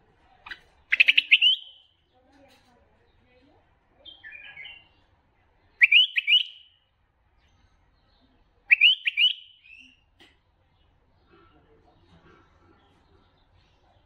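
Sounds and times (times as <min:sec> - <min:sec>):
bird song: 0:00.3 - 0:14.0.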